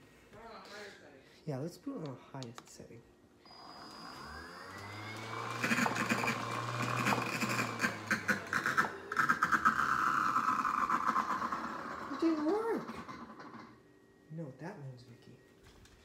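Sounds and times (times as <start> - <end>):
ball launcher motor whining: 3.5 - 13.8.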